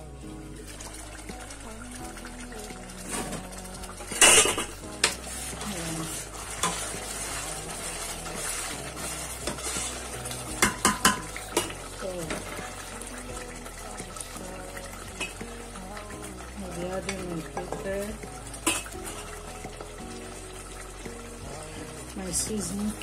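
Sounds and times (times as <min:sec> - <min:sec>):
spoon stirring and scraping pot: 0:02.6 - 0:14.4, 0:15.1 - 0:15.6, 0:17.0 - 0:21.1
spoon clanking on pot: 0:04.1 - 0:05.2, 0:10.5 - 0:12.6, 0:15.2 - 0:15.4, 0:17.0 - 0:19.3.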